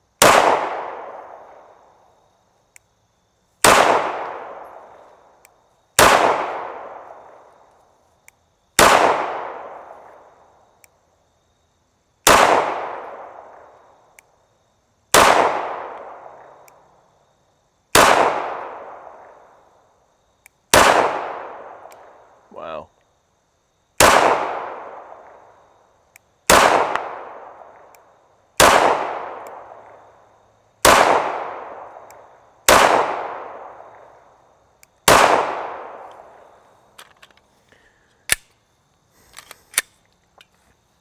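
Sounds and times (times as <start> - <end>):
pistol shots: 0.2 - 1.7, 3.6 - 5.0, 6.0 - 7.4, 8.8 - 10.1, 12.2 - 13.7, 15.1 - 16.4, 17.9 - 19.3, 20.7 - 21.9, 24.0 - 25.4, 26.5 - 27.9, 28.6 - 30.0, 30.8 - 34.1, 35.0 - 36.3.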